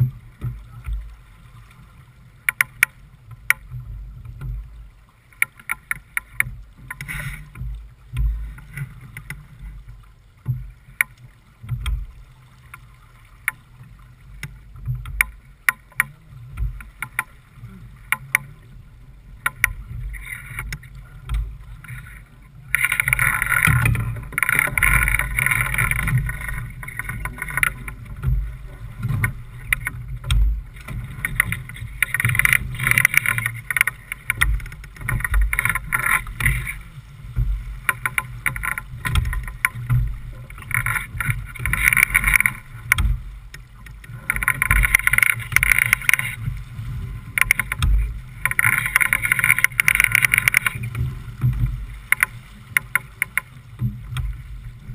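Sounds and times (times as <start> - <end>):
water rushing along hull: 0.0 - 54.9
sharp clicks and knocks: 2.4 - 4.6, 5.3 - 9.4, 14.4 - 17.3, 19.4 - 22.1, 22.7 - 36.8, 37.4 - 46.5, 47.3 - 54.4.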